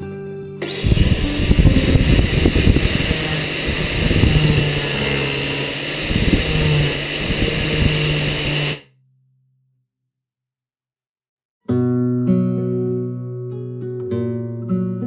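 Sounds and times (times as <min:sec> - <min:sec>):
angle grinder sanding wood: 0:00.6 - 0:08.9.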